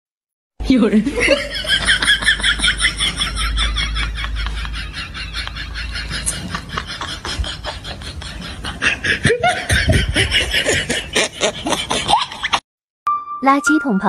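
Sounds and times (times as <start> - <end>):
person chuckling: 4.2 - 12.6.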